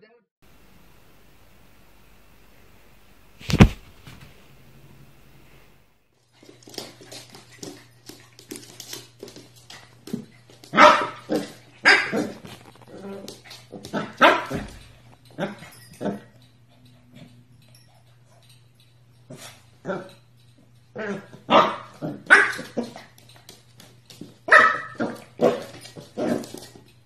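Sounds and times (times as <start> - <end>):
claws scrabbling on wooden floor: 6.4 - 14.0
puppy barking: 10.7 - 12.4, 13.9 - 14.7, 21.0 - 23.0, 24.5 - 25.7.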